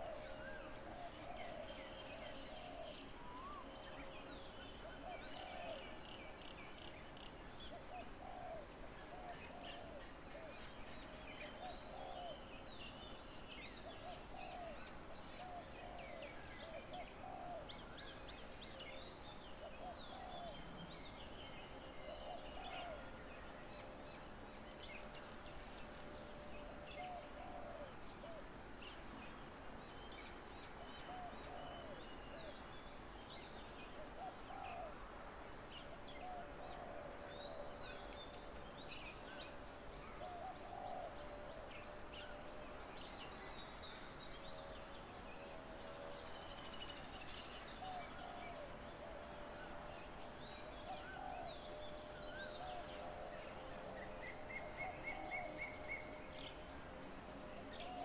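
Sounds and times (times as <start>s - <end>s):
bird hooting or cooing call: 0.0s - 6.2s, 7.6s - 10.8s, 11.4s - 12.6s, 13.8s - 20.9s, 21.9s - 23.3s, 26.5s - 28.4s, 30.8s - 32.6s, 33.8s - 35.1s, 35.7s - 38.3s, 39.3s - 42.4s, 47.5s - 56.6s, 57.7s - 58.0s
faint high-pitched drone: 0.0s - 58.0s.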